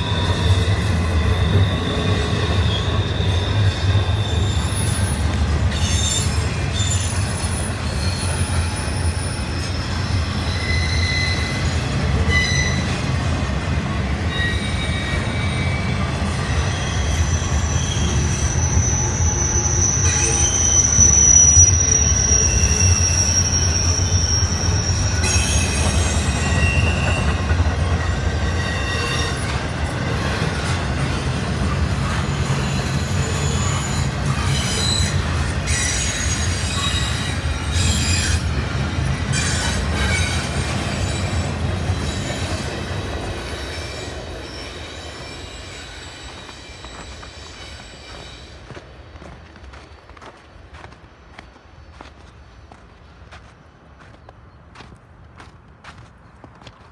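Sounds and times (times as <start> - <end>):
high wheel squeals: 0.0 - 13.1, 14.2 - 52.3
train wheels rumbling on rails: 0.0 - 56.9.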